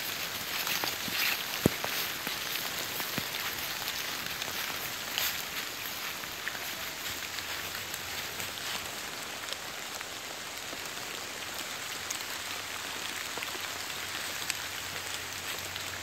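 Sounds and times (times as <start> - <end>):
water drips ticking: 0.0 - 10.8
rain pattering on leaves: 0.0 - 16.0.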